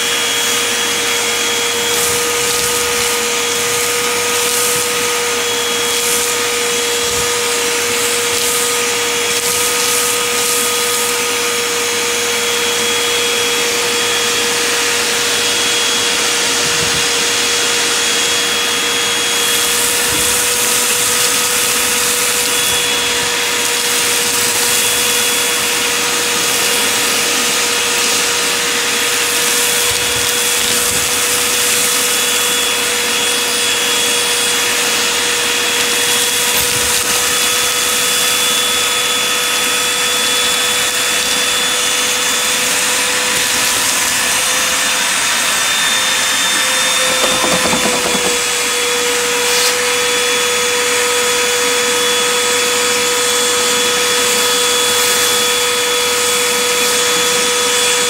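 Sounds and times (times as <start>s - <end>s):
vacuum cleaner whining: 0.0s - 58.0s
grit rattling up a hose: 0.5s - 11.6s, 19.3s - 45.6s, 46.3s - 50.1s.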